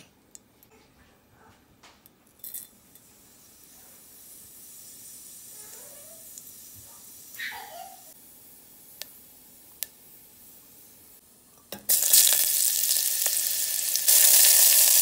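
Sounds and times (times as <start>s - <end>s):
seeds sizzling in hot fat: 3.0s - 11.2s, 11.8s - 15.0s.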